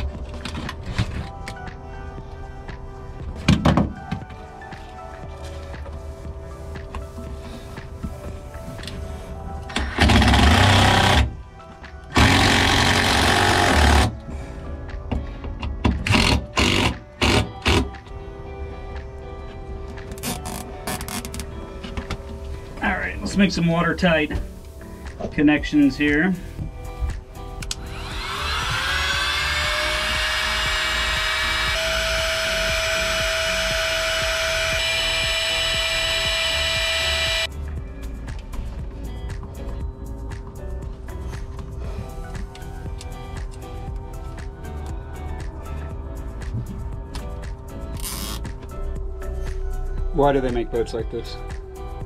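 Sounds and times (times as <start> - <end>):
heat gun fan whine: 9.7 - 11.3, 12.2 - 14.1, 27.6 - 37.5
small electric motor running: 27.8 - 37.5.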